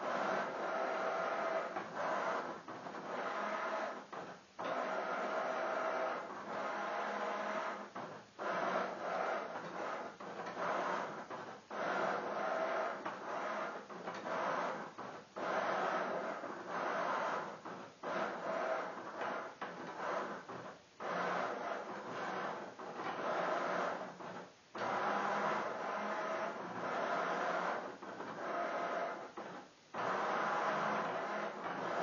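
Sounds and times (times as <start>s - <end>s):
robot arm motor whirring: 0.0s - 32.0s.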